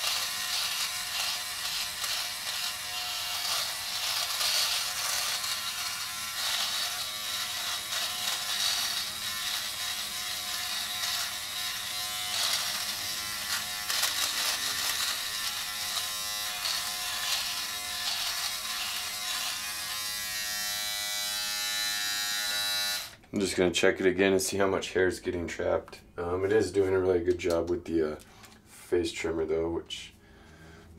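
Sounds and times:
hair trimmer buzzing on stubble: 0:00.0 - 0:23.2.

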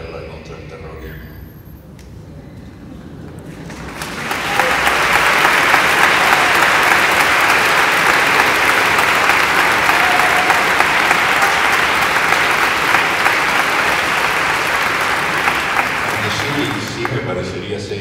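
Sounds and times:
audience applauding: 0:03.4 - 0:17.8.

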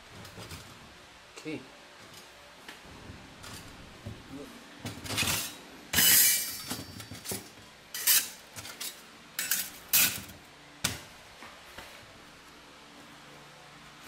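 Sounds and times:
metal scrape: 0:05.2 - 0:06.7, 0:07.9 - 0:10.3.

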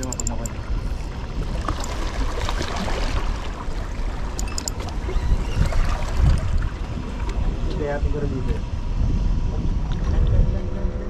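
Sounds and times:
wind buffeting microphone: 0:00.0 - 0:11.0
sea water washing against rocks: 0:00.5 - 0:08.1.

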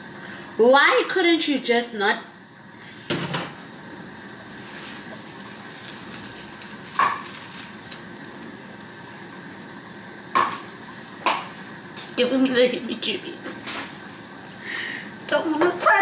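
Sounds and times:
plastic bag crackling: 0:04.7 - 0:09.0.

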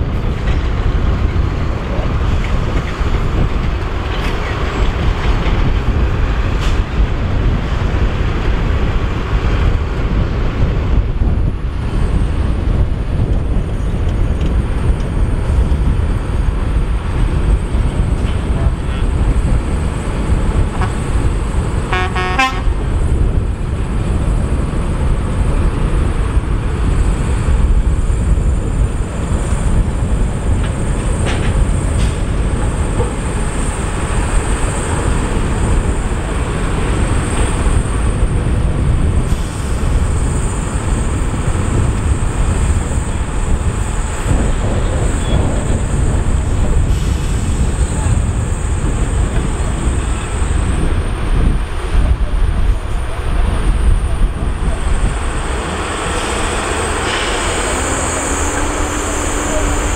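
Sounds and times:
diesel truck engine rumbling: 0:00.0 - 0:59.9
truck horn toot: 0:20.8 - 0:21.1, 0:21.9 - 0:22.8.

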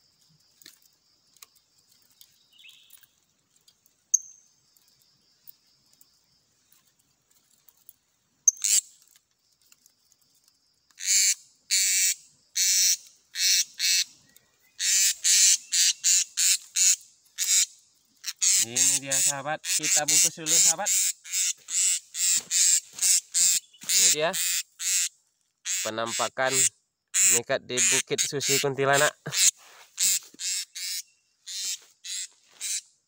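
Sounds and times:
sharp bird chirps: 0:01.3 - 0:06.9, 0:08.4 - 0:09.1, 0:10.9 - 0:33.0
parrot screeching: 0:18.2 - 0:25.1.

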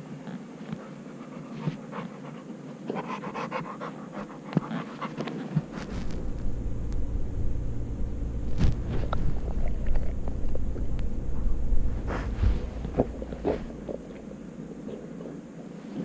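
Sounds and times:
dog panting and mouthing: 0:00.8 - 0:05.7
microphone handling rumble: 0:05.6 - 0:14.3.

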